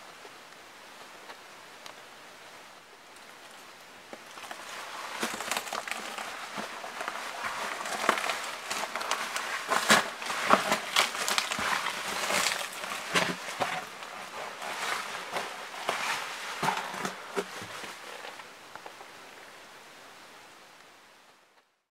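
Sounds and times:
footsteps crunching on stones: 4.2 - 18.4.

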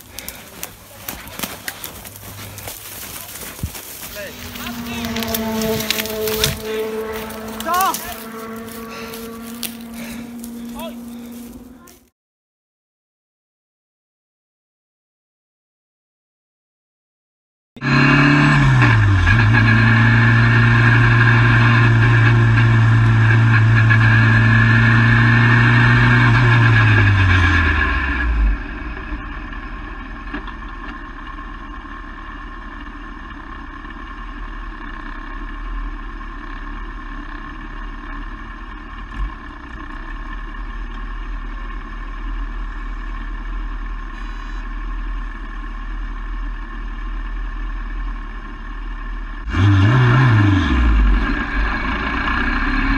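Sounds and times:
race car engine revving: 0.0 - 12.0, 17.8 - 35.6, 49.4 - 52.9.

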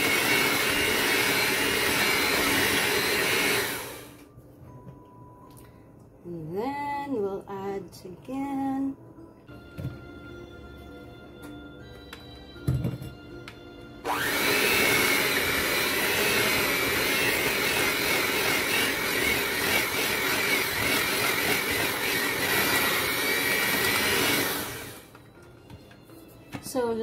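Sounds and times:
electric mixer whining: 0.0 - 4.2, 14.0 - 25.2.

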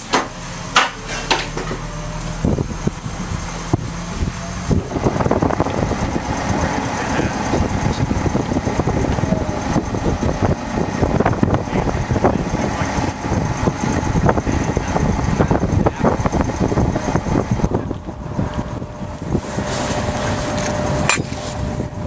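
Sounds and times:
crane engine running: 0.0 - 22.0.

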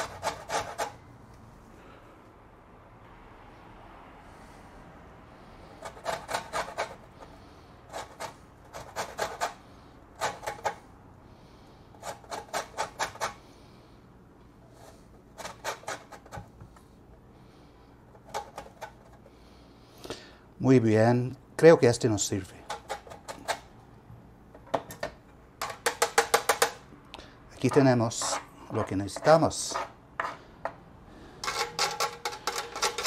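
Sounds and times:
grater scraping: 0.0 - 1.0, 5.7 - 9.6, 10.2 - 10.8, 12.0 - 13.4, 14.7 - 16.5, 27.6 - 30.4, 31.4 - 33.0.

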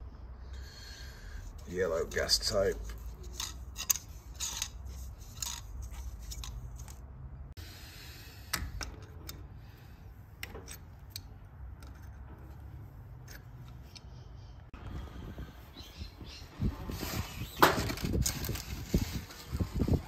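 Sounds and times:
light metal clicks and scrapes: 1.5 - 7.1, 10.4 - 14.4
tape pulled off roll: 16.7 - 20.0.

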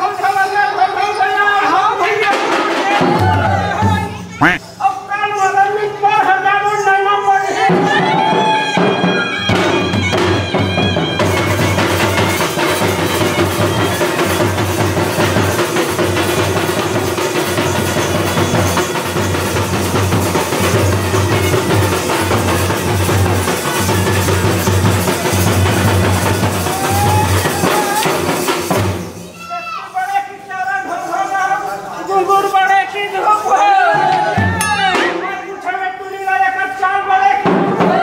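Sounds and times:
fast steady folk drumming: 2.1 - 4.6, 7.6 - 29.3.

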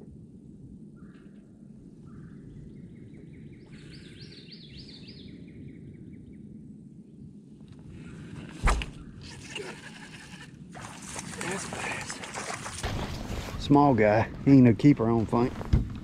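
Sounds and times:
songbird singing: 0.8 - 10.1.

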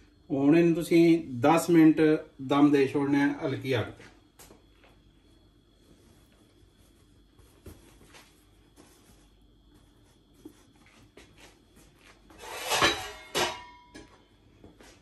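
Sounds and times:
cookware scraping clatter: 12.4 - 13.8.

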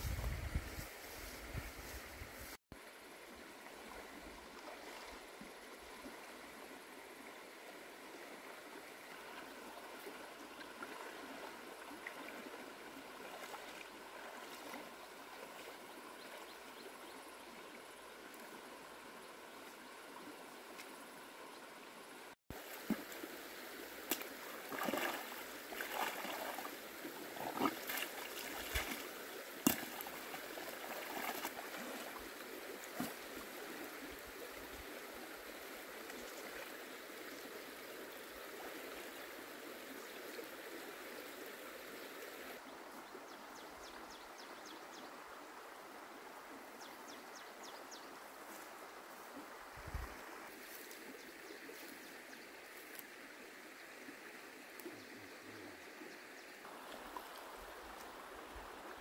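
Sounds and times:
stream running over stones: 2.7 - 59.0
person wading in water: 9.1 - 16.6, 22.5 - 33.9.

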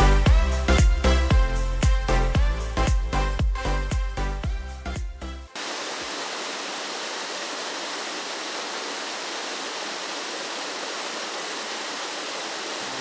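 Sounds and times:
music track: 0.0 - 5.6
water pouring over rocks: 5.6 - 13.0.

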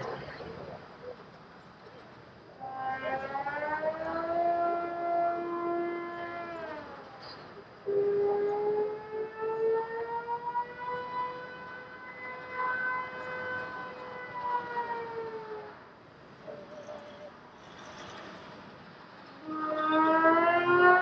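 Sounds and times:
siren wailing: 2.6 - 17.3, 19.3 - 21.0.

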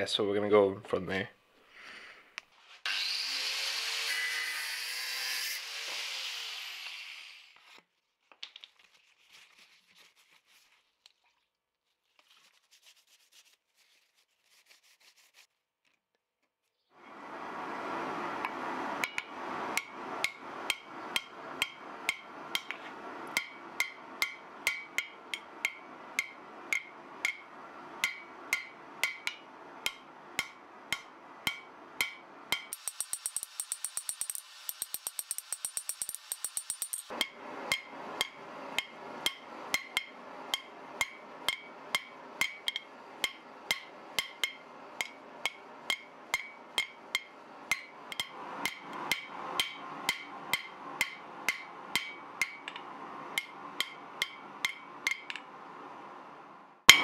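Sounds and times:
angle grinder cutting steel: 2.9 - 7.6, 32.7 - 37.1
steady rushing noise: 17.1 - 32.6
hammer striking steel on anvil: 19.0 - 55.4.

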